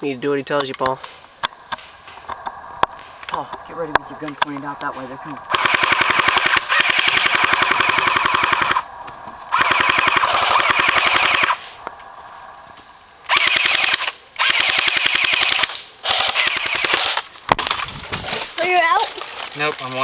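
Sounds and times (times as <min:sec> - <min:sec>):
airsoft gun firing bursts: 0:05.5 - 0:08.8, 0:09.5 - 0:11.6, 0:13.3 - 0:17.2.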